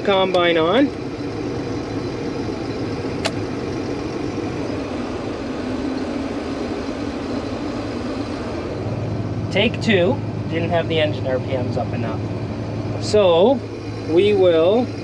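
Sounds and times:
diesel engine running at low revs: 0.0s - 15.0s
sharp click: 3.2s - 3.4s.

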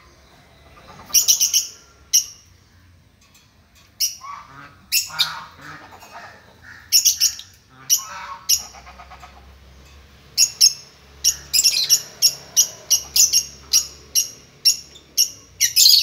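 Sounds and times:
lovebirds chirping: 0.0s - 16.0s.

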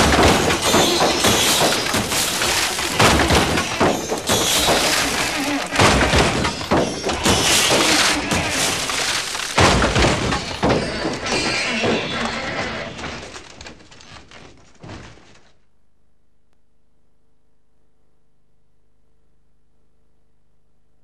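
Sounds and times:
glass breaking: 0.0s - 12.2s
heavy crashes and thuds: 0.0s - 14.0s
clattering scrapyard din: 0.0s - 15.4s.

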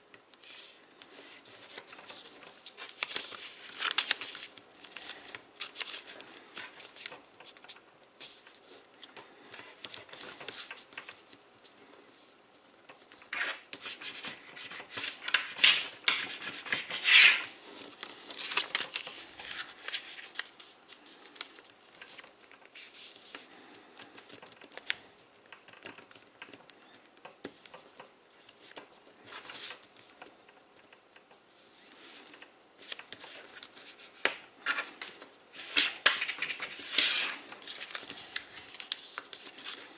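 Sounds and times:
paper being folded and creased: 0.4s - 11.4s, 12.9s - 23.5s, 31.6s - 39.9s.

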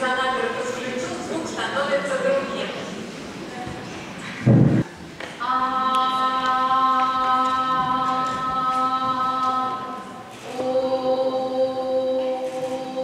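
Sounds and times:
woman singing a sustained note: 5.4s - 13.0s.

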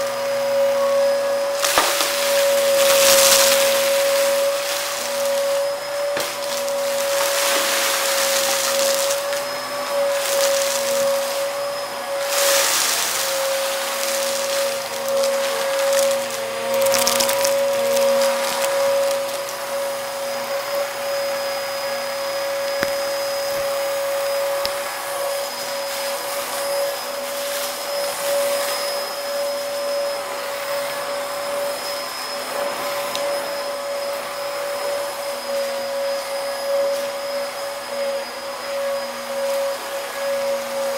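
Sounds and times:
vacuum cleaner running: 0.0s - 40.9s
debris clicks in vacuum: 1.6s - 11.6s, 12.2s - 19.8s.

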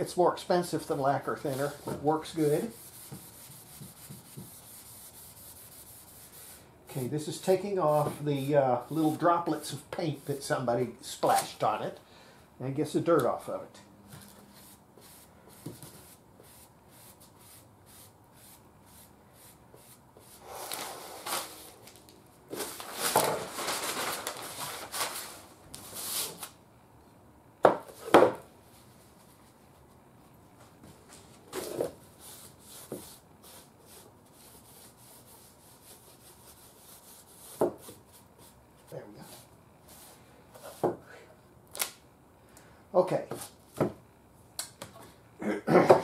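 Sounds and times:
rag rubbing wooden cabinet: 1.4s - 6.6s.

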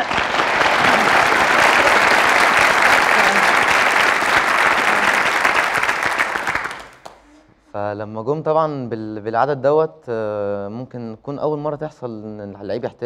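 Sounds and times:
audience applauding: 0.0s - 7.3s.

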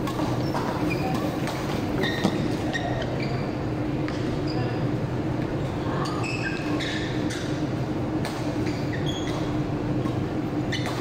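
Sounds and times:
racket hitting shuttlecock: 0.0s - 2.4s, 8.2s - 11.0s
shoes squeaking on court: 0.0s - 4.9s, 5.5s - 7.7s, 8.3s - 11.0s
steady low hum: 0.0s - 11.0s.

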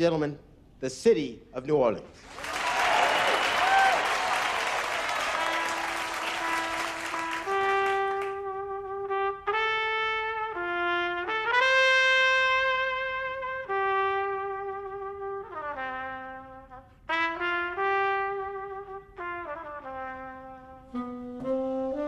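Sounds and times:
audience applause: 2.2s - 8.4s
trumpet slow melody: 3.6s - 22.0s.

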